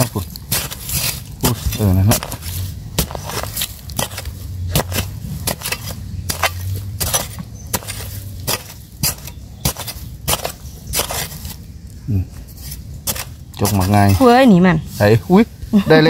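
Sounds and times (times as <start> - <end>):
metal spade chopping into soil: 0.0 - 11.6, 12.6 - 14.4
dirt clods scattering: 0.0 - 15.2.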